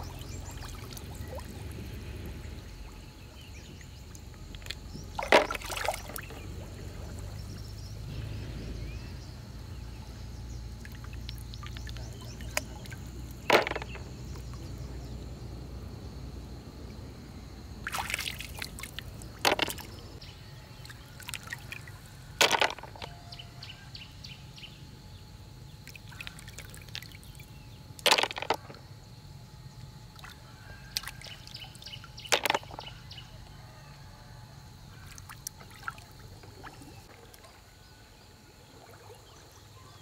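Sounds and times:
water sloshing and trickling: 0.0s - 24.0s, 25.1s - 40.0s
shells dropped into plastic basin: 13.4s - 14.1s, 19.4s - 19.8s, 22.4s - 23.2s, 28.0s - 28.8s, 32.3s - 32.9s.

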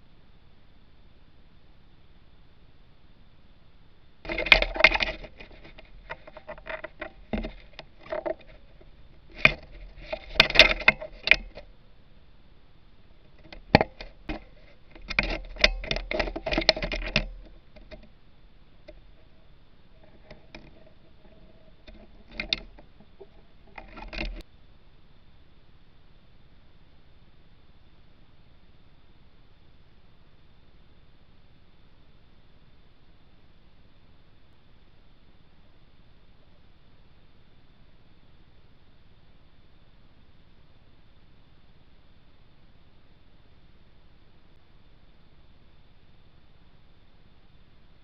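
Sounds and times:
bird talons scratching and tapping: 4.3s - 11.7s, 13.3s - 18.1s, 18.8s - 24.4s.

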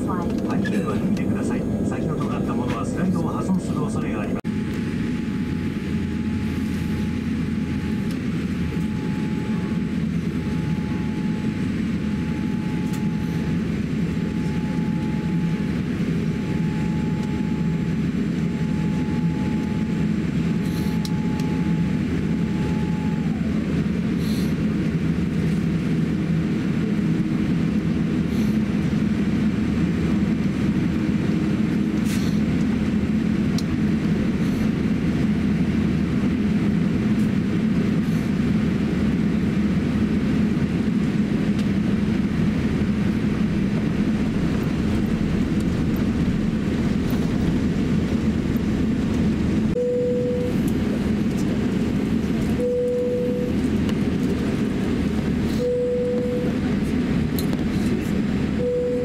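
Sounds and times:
thin whine dropping in pitch: 0.0s - 23.8s
airliner cabin rumble: 0.0s - 59.0s.

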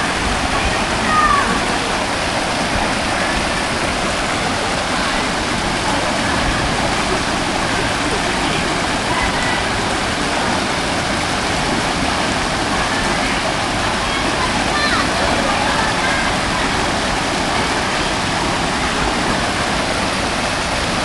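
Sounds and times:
waterfall pouring into pool: 0.0s - 21.0s.

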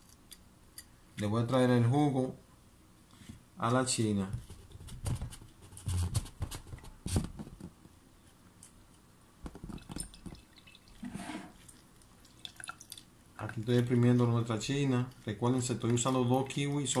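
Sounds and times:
juice dripping into a glass jar: 9.6s - 11.0s, 11.6s - 17.0s.

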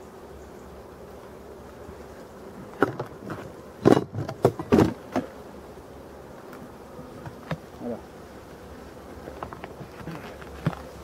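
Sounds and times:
bees buzzing: 0.0s - 11.0s
knocks and rustles of hive cover: 2.5s - 5.5s, 6.4s - 7.8s, 8.8s - 11.0s.

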